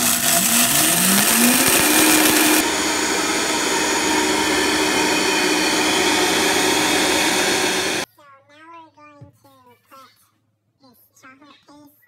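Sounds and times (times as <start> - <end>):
blender motor running: 0.0 - 8.0
gritty hiss of beans grinding: 0.0 - 8.0.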